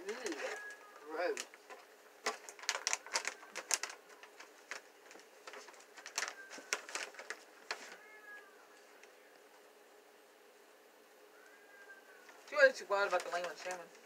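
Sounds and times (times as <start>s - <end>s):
dog crunching a treat: 0.1s - 7.8s.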